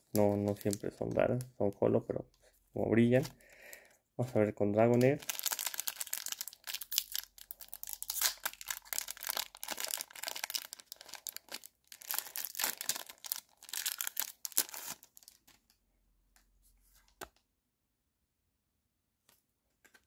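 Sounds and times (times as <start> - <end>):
foil wrapper crinkling: 0.1 - 1.4, 5.0 - 15.7.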